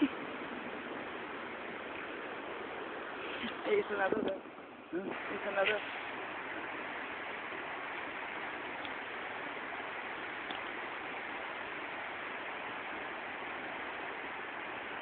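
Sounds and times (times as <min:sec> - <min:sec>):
river water rushing over rocks: 0:00.0 - 0:15.0.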